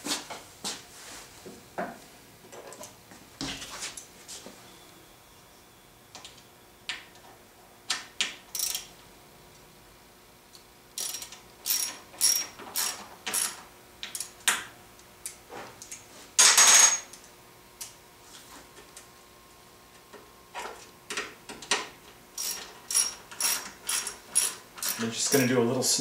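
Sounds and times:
ratchet wrench clicking: 8.5s - 8.9s, 11.0s - 14.3s.

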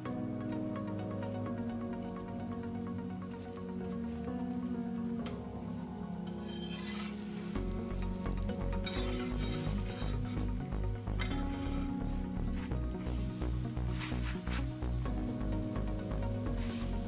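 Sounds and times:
chapati sizzling on a griddle: 6.3s - 12.2s, 13.0s - 15.0s, 15.9s - 17.0s
metal spatula scraping and clinking: 6.4s - 8.0s, 8.8s - 10.5s
electronic music with steady beat: 7.2s - 17.0s.

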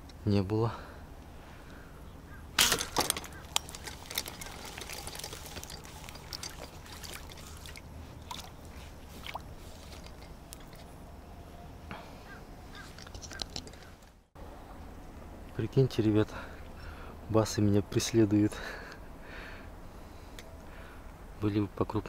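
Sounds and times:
water splashing and trickling: 2.6s - 10.9s.

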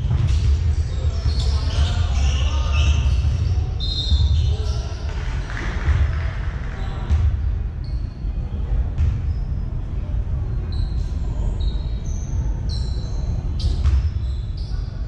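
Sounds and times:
sneakers squeaking: 0.0s - 9.9s, 10.6s - 15.0s
low hall rumble: 0.0s - 15.0s
basketball bouncing: 9.0s - 9.4s, 13.6s - 14.2s.

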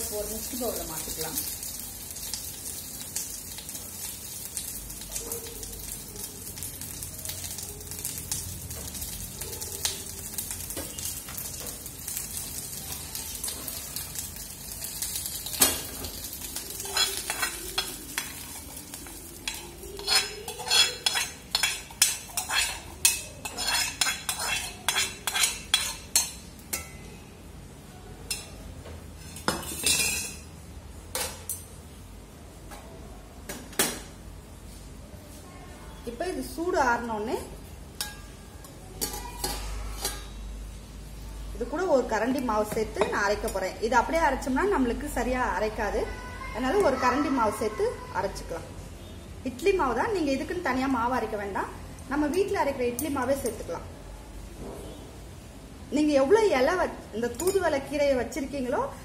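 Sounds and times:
spices sizzling in a pan: 0.0s - 32.3s.

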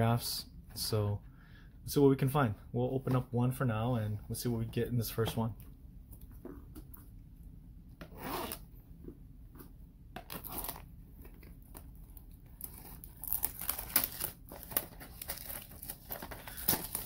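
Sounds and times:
plastic shrink wrap crinkling: 10.2s - 17.0s.

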